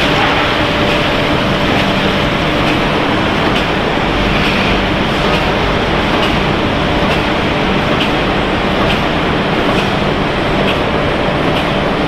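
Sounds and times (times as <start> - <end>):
machinery running: 0.0 - 12.0.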